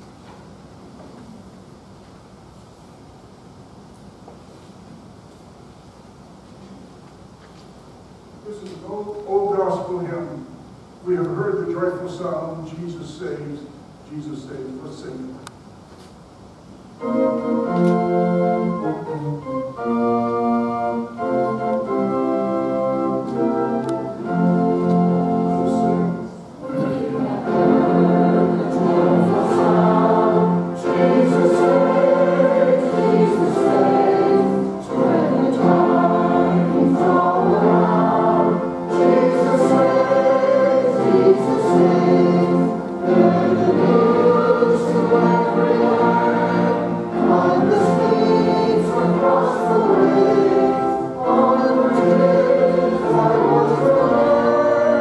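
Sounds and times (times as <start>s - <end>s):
congregation singing a hymn: 17.0s - 55.0s
organ playing chords: 17.0s - 55.0s.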